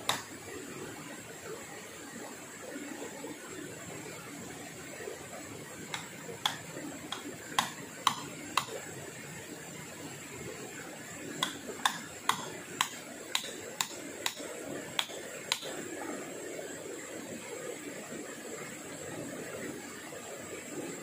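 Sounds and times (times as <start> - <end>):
hand tool knocking on wood: 6.0 - 8.7, 11.4 - 14.4.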